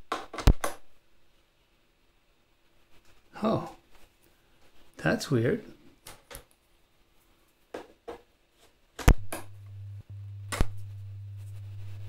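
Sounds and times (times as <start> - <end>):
steady test tone: 9.2 - 12.0
connector plugs clicking: 10.4 - 10.9
loud electrical pop: 10.4 - 10.9.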